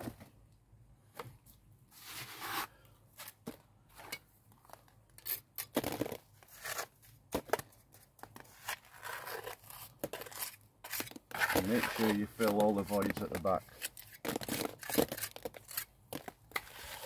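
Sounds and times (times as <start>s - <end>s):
trowel scraping mortar: 8.5s - 17.0s.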